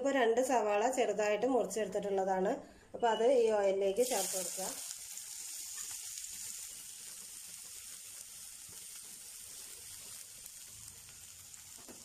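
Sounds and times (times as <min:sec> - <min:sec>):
onions sizzling in oil: 0:03.9 - 0:12.0.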